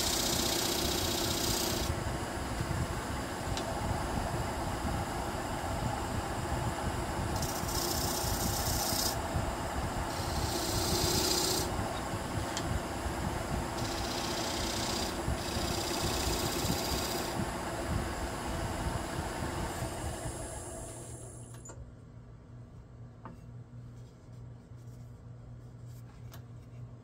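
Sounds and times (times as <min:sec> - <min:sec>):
wood lathe humming: 0:00.0 - 0:02.0, 0:07.4 - 0:09.3, 0:10.1 - 0:12.1, 0:13.7 - 0:17.4
gouge shaving hiss: 0:10.1 - 0:11.7.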